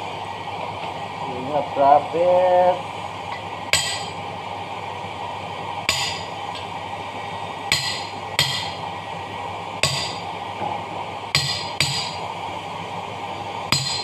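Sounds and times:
hammer striking steel punch: 3.8 - 4.2, 5.9 - 6.3, 7.7 - 8.8, 9.8 - 10.2, 11.4 - 12.2, 13.7 - 14.0.

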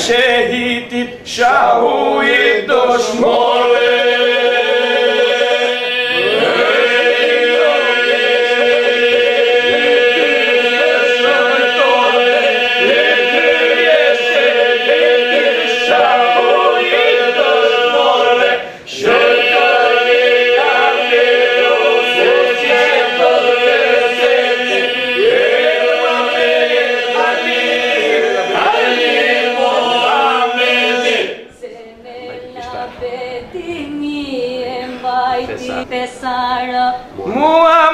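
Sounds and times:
men singing a religious song: 0.0 - 31.5, 37.1 - 37.9.

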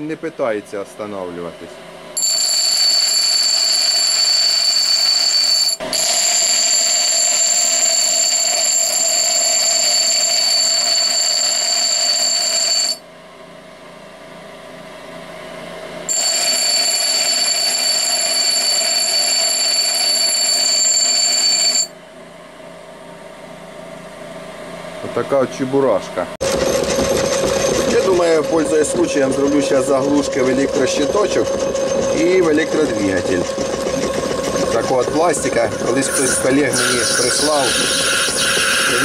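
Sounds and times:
grinder motor humming: 2.2 - 13.0, 26.4 - 39.0
grinder wheel screeching on steel: 2.2 - 13.0, 26.4 - 39.0.

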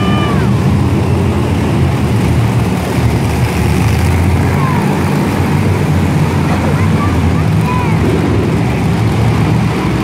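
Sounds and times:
monster truck engine droning: 0.0 - 10.0.

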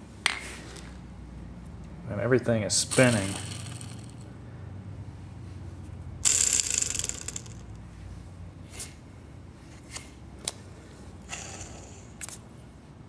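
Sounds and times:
crankshaft rattling metallically: 2.9 - 4.2, 6.2 - 7.7.

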